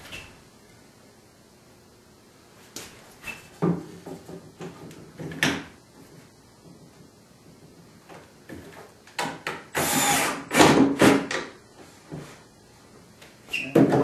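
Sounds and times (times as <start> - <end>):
power drill driving a screw: 9.7 - 10.6.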